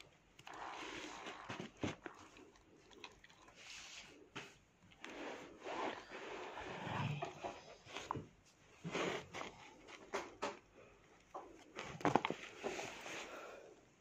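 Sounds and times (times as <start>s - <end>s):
rubbing and scraping on plush toy: 0.4s - 2.5s, 3.5s - 10.2s, 11.7s - 13.4s.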